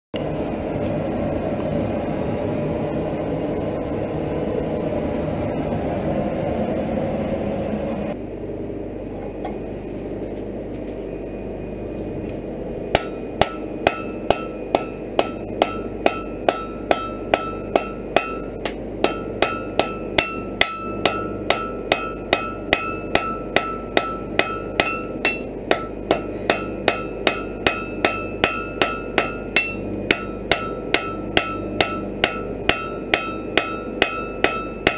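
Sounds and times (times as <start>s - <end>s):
hammer ringing on anvil: 12.9s - 34.9s.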